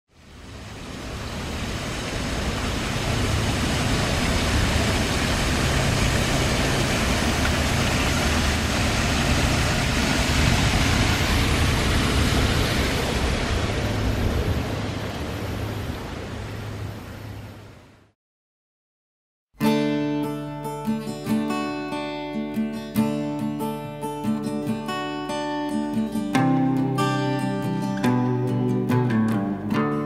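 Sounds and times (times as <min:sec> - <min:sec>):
water rushing over a cascade: 0:00.1 - 0:17.7.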